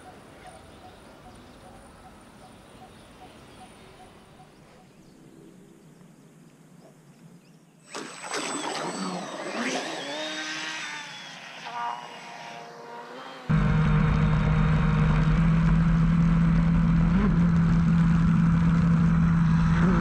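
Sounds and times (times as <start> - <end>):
electric motor whining: 8.5 - 20.0.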